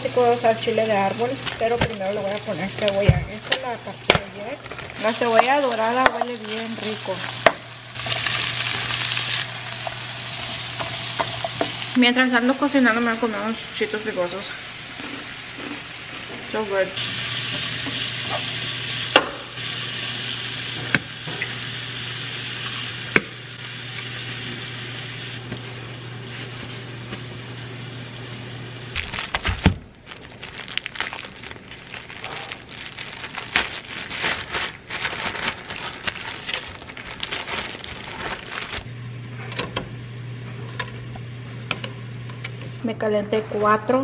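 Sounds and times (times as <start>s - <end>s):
vegetables sizzling in a skillet: 0.0s - 29.0s
plastic bag crinkling: 4.6s - 11.9s, 29.0s - 38.9s.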